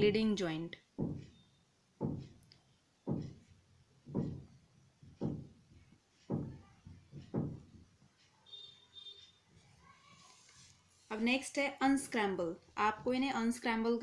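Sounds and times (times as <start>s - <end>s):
dull knocks: 1.0s - 1.4s, 2.0s - 2.4s, 3.0s - 5.6s, 6.3s - 7.8s.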